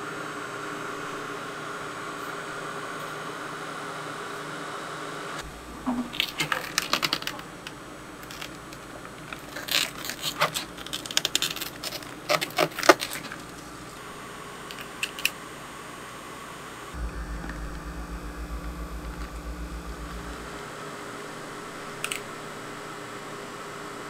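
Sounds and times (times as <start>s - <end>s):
steady low hum: 17.0s - 24.0s.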